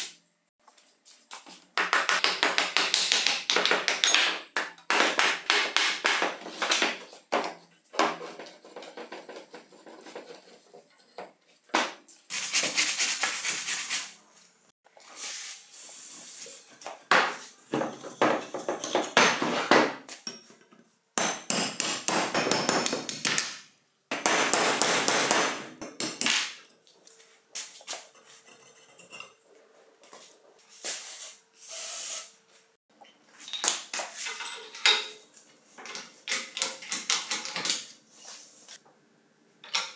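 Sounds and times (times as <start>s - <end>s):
loose metal parts clinking: 33.4s - 37.9s.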